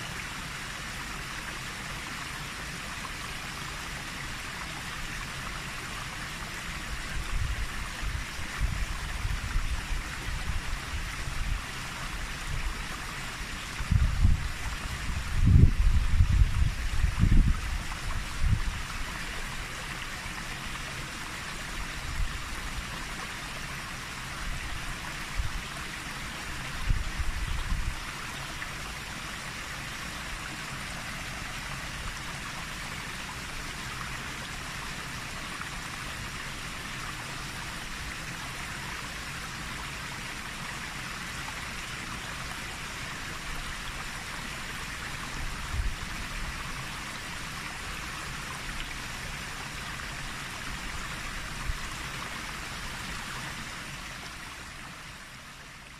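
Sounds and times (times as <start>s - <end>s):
water rushing down rapids: 0.0s - 55.9s
low wind buffets on microphone: 7.1s - 12.8s, 13.7s - 19.0s, 26.7s - 28.1s.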